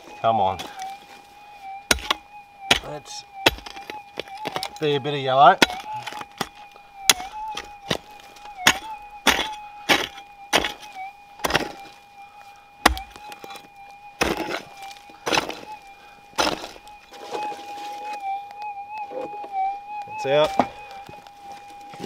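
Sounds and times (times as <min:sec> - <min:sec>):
digging tool striking gravel: 0:01.9 - 0:04.9, 0:05.5 - 0:11.8, 0:12.8 - 0:15.7, 0:16.4 - 0:17.6
scraping in ground: 0:05.6 - 0:12.0, 0:12.8 - 0:15.8, 0:16.4 - 0:18.2.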